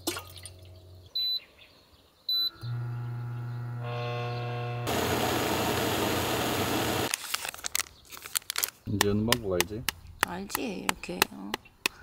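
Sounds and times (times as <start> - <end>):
cooktop electrical hum and buzz: 2.6 - 7.1
water hissing in kettle: 4.9 - 7.1.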